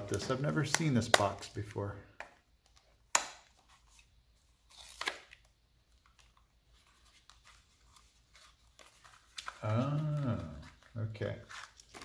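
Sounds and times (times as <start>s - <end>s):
cardboard tearing: 4.7s - 5.4s, 11.5s - 12.0s.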